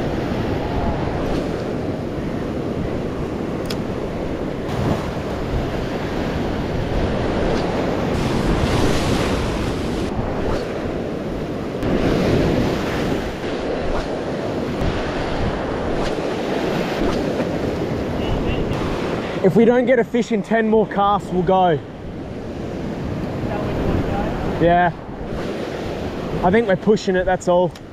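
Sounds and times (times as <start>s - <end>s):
small waves washing on sand: 0.0s - 19.5s
wind buffeting microphone: 0.0s - 27.9s.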